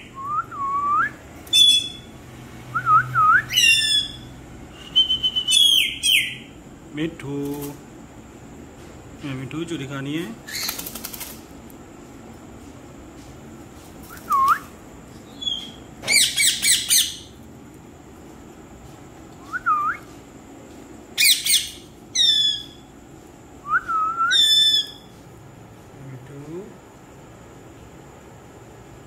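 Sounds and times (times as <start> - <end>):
parakeet whistles: 0.0 - 2.1, 2.8 - 6.5, 15.3 - 17.3, 21.2 - 22.8, 23.7 - 25.1
parakeet squawks: 1.5 - 2.1, 3.5 - 4.3, 15.3 - 17.3, 21.2 - 22.8, 24.3 - 25.1.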